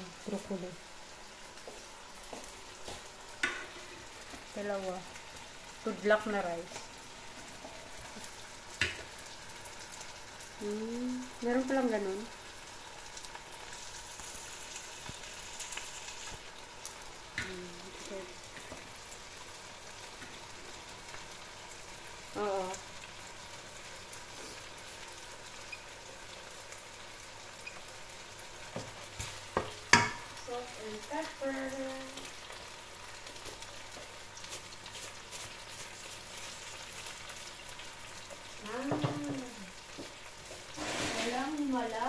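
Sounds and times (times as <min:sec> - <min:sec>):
onions sizzling in a wok: 0:00.0 - 0:42.0
wooden spatula scraping a pan: 0:40.0 - 0:41.8.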